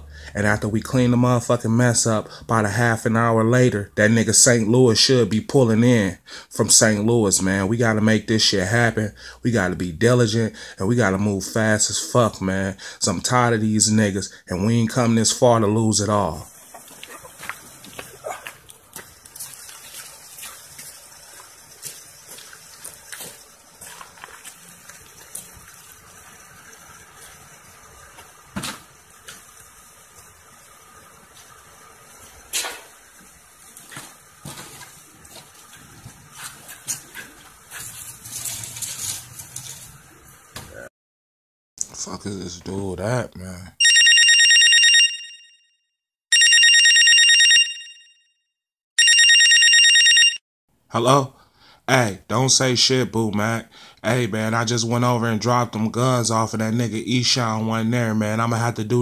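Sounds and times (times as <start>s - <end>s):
telephone ringing with electronic trill: 43.8s - 45.7s, 46.3s - 48.3s, 49.0s - 50.4s.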